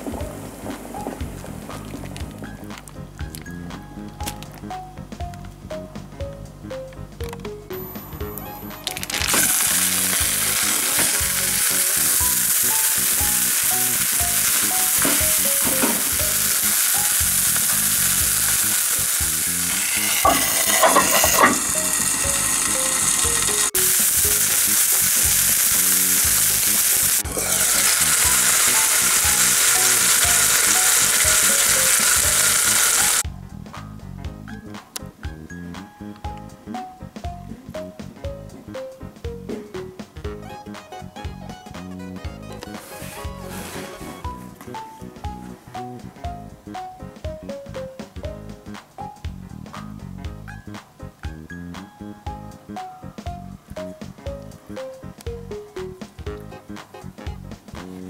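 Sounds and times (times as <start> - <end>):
meat sizzling in a pan: 8.9 - 33.2
pan lid clattering: 20.0 - 22.2.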